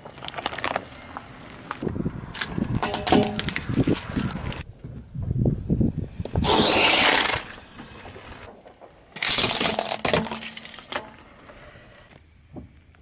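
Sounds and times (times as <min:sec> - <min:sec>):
tyre crushing plastic: 0:09.2 - 0:11.1.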